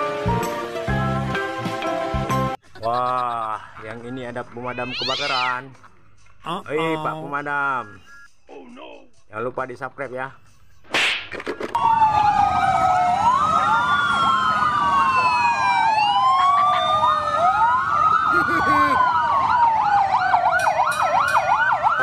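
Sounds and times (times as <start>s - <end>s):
rapid yelping siren: 4.7s - 5.6s, 11.8s - 22.0s
wailing fire truck sirens: 11.8s - 22.0s.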